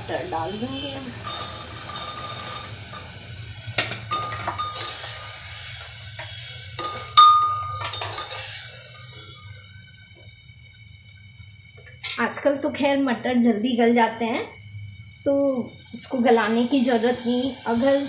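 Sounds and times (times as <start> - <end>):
peas sizzling in hot oil: 0.0 - 18.0
metal spoon scraping a pot: 1.2 - 2.8, 4.1 - 5.4, 6.2 - 8.7.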